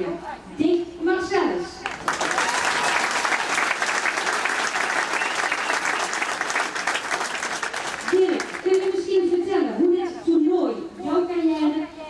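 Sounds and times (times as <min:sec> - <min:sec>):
crowd applauding: 0:01.8 - 0:09.0.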